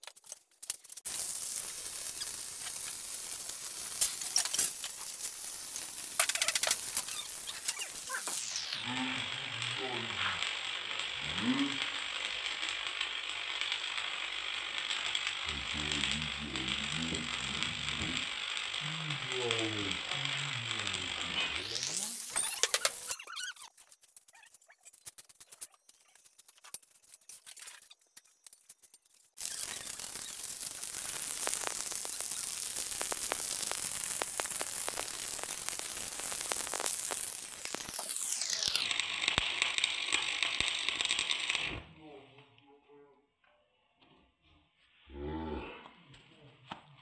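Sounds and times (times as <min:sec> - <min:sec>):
sharp pops: 0:00.0 - 0:08.8, 0:14.8 - 0:41.6
welding arc crackling: 0:00.0 - 0:41.9.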